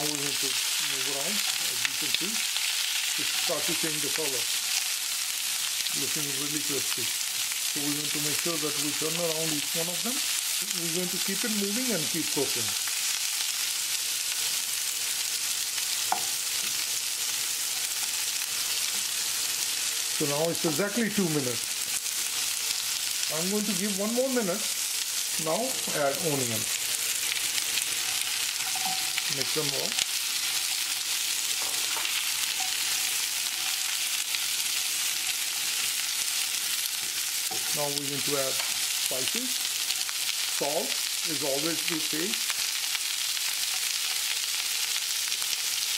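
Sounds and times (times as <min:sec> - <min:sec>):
vegetables sizzling in a frying pan: 0:00.0 - 0:45.9
spatula stirring in a pan: 0:24.8 - 0:37.7.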